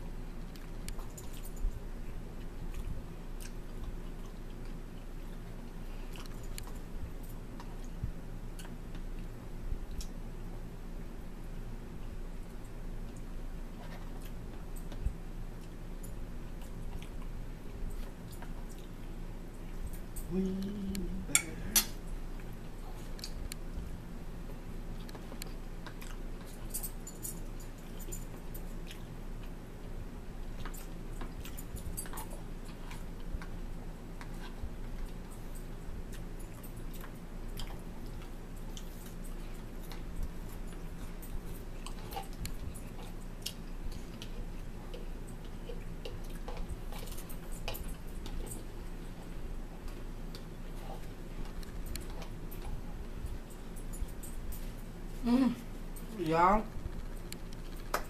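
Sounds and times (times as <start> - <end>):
steady low hum: 0.0 - 58.0
chewing and mouth noises: 0.4 - 10.2, 12.4 - 56.1
short low hum: 19.8 - 24.3.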